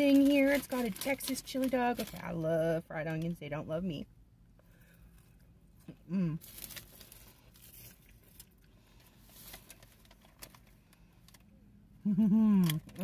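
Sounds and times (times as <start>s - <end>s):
foil paper wrapper crinkling: 0.0s - 3.3s, 6.4s - 11.4s
person humming: 6.1s - 6.4s.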